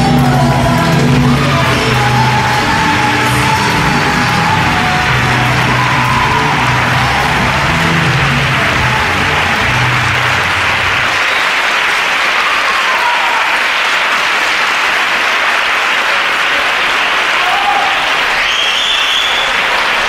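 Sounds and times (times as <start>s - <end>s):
flamenco music: 0.0s - 12.6s
audience applauding: 0.0s - 20.0s.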